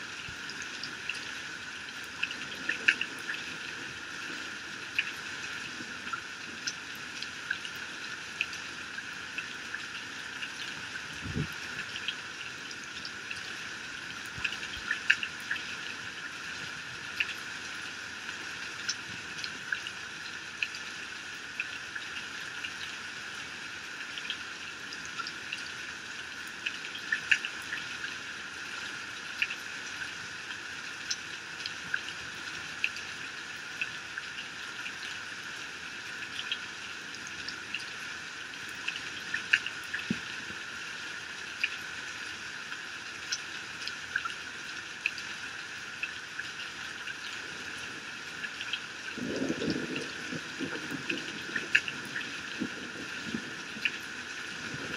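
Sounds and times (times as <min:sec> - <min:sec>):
heavy rain pouring off a roof: 0:00.0 - 0:54.9.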